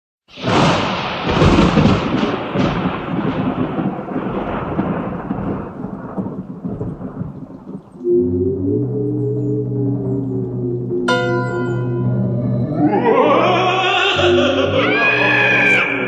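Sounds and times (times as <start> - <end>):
thunder rumbling: 0.3 - 16.0
low ringing tones: 8.0 - 13.2.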